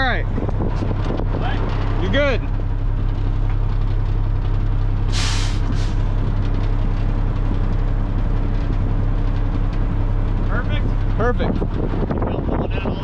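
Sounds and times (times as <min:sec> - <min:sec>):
truck engine idling: 0:00.0 - 0:13.0
air brake hiss: 0:05.1 - 0:06.0.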